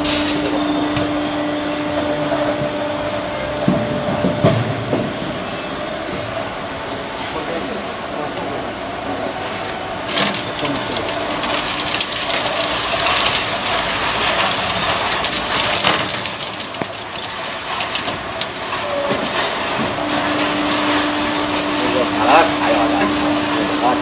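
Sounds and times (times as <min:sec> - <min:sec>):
cutting machine mechanical noise: 0:09.6 - 0:24.0
clicks and clanks: 0:10.1 - 0:21.7.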